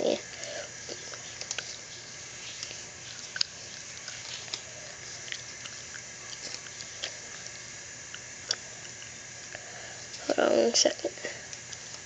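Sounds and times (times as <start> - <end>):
steady background hiss: 0.0 - 12.0
paper crinkling: 0.9 - 7.7.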